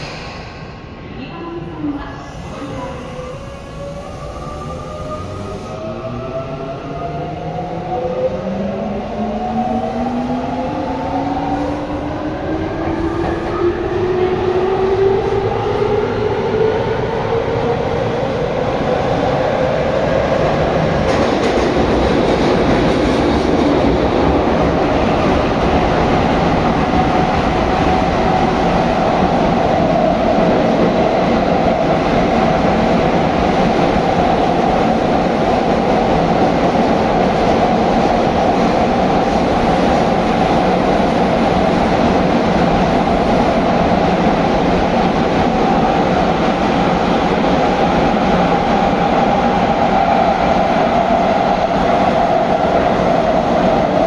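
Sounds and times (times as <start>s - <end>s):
train running in tunnel: 0.0s - 54.0s.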